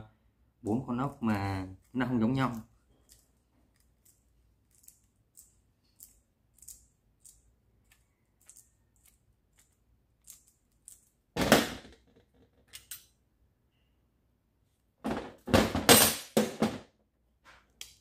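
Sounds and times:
screwdriver squeaks and ticks: 1.8s - 11.2s.

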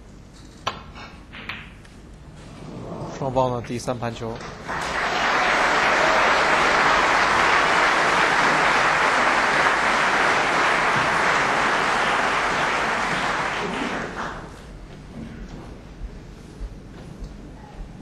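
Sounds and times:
audience applauding: 4.4s - 14.6s.

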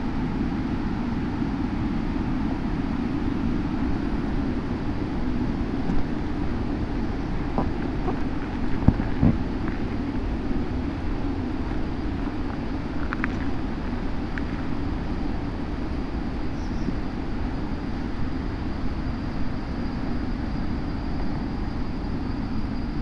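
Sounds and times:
motorcycle engine at low speed: 0.0s - 18.4s.

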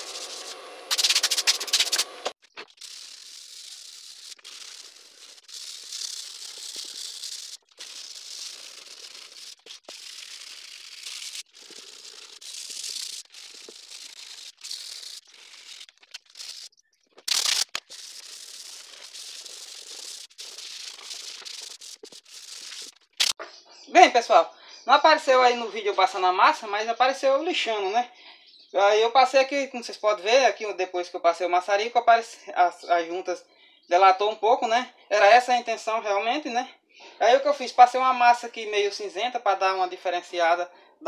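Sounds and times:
sandpaper rubbing on wood: 0.0s - 23.0s.

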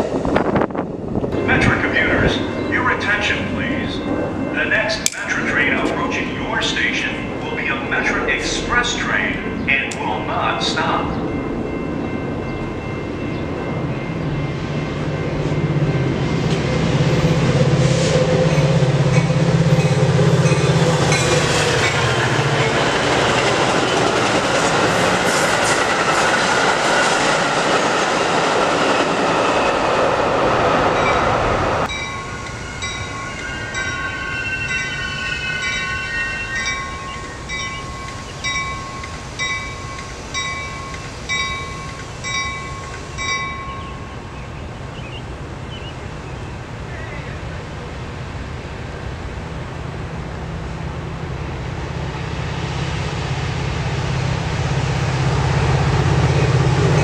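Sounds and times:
loud rail noise: 0.0s - 57.0s
train engine drone: 0.0s - 57.0s
crossing bell ringing: 1.3s - 17.7s, 18.3s - 30.1s, 30.9s - 44.7s.

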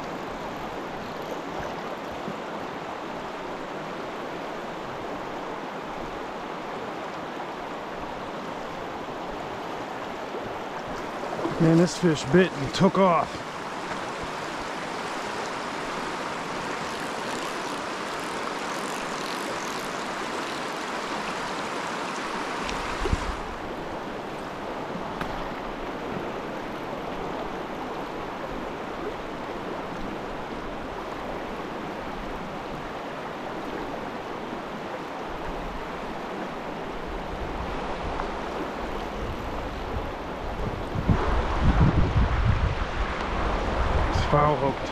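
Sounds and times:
river rushing over rapids: 1.9s - 38.9s
wind rumble on microphone: 21.6s - 23.7s, 37.0s - 44.9s.

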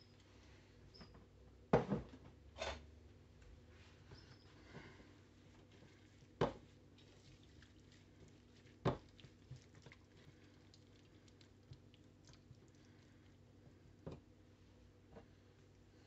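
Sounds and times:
spatula stirring wet marinade: 5.4s - 13.7s.

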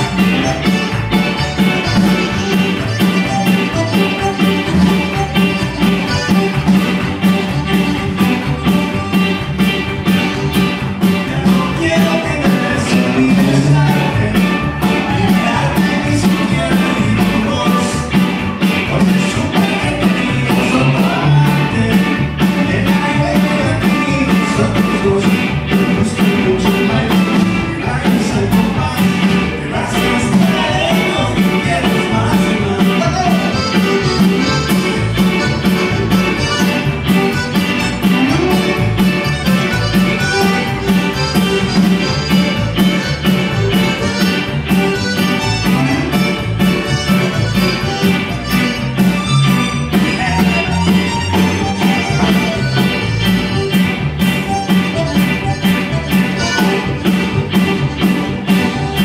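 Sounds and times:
accordion: 0.0s - 59.0s
bass: 0.0s - 59.0s
drums keeping a quick beat: 0.0s - 59.0s
electric guitars: 0.0s - 59.0s
man singing into a microphone: 11.2s - 34.5s, 49.7s - 52.8s.

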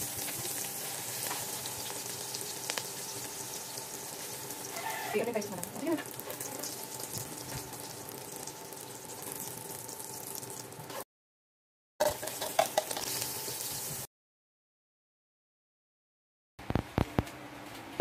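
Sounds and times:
omelet sizzling in hot oil: 0.0s - 11.0s, 12.0s - 14.1s.

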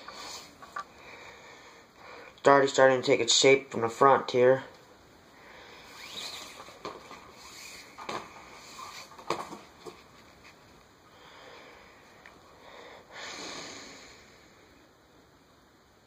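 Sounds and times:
paracord rustling: 5.8s - 11.0s.

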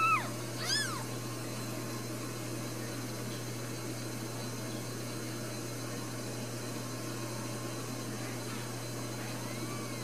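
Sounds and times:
kitten mewing: 0.0s - 1.1s
steady low hum: 0.0s - 10.0s.

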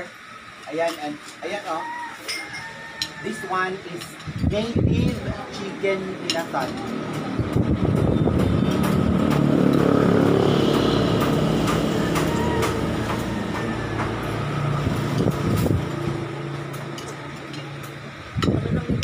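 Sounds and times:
cutlery clicking on plates: 2.3s - 3.2s, 6.3s - 7.3s, 16.7s - 18.6s
vehicle engine running: 4.3s - 19.0s.

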